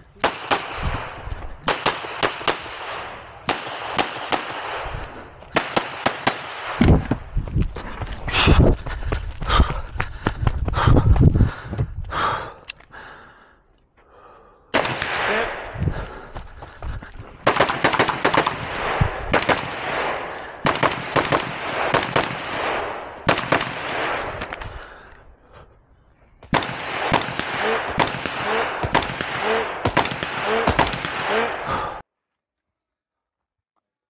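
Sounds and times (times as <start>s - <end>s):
rapid gunfire with echo: 0.2s - 6.8s, 14.8s - 15.7s, 17.4s - 24.4s, 26.5s - 32.0s.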